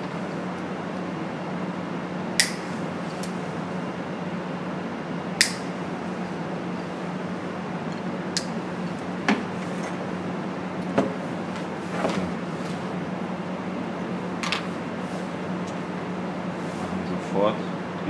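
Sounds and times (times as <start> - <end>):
low hum and hiss: 0.0 - 18.0.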